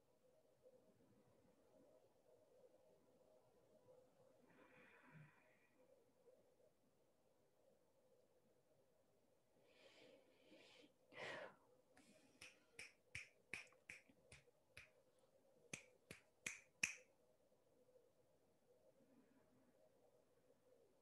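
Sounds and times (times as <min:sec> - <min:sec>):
soft breathy noises: 0:00.6 - 0:06.8, 0:09.4 - 0:13.0
finger snapping: 0:12.4 - 0:14.9, 0:15.7 - 0:17.1.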